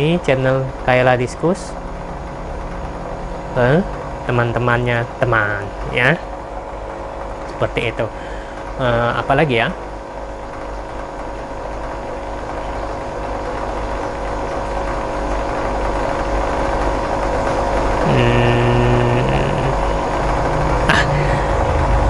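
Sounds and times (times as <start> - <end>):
mechanical hum with drone: 0.0 - 22.0
man humming: 17.9 - 21.8.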